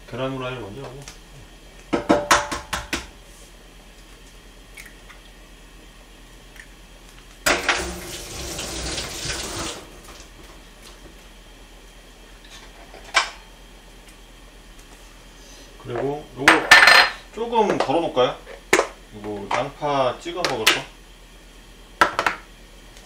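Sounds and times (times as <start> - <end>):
sharp kitchen knocks: 1.9 - 3.1
water running from tap: 7.6 - 10.3.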